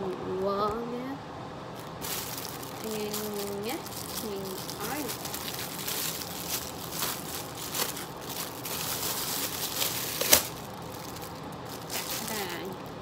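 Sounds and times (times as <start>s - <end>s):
plastic bag crinkling: 1.8s - 13.0s.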